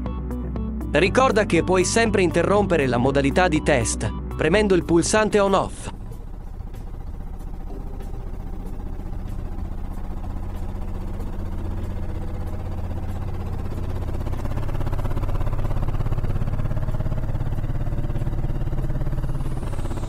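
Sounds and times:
washing machine spinning: 5.6 - 20.0.

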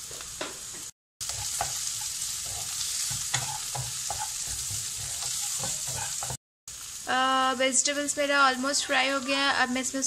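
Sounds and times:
vegetables sizzling in oil: 0.0 - 10.0
wooden spatula knocking pan: 3.0 - 6.4.

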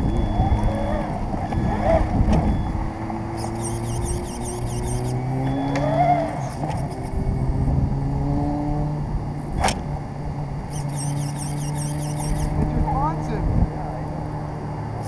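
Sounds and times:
toy car motor humming: 2.5 - 7.2, 10.7 - 12.8.

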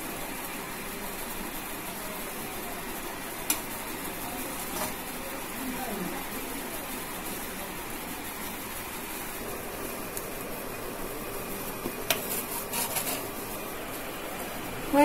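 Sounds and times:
spoon scraping a plate: 12.1 - 13.3.

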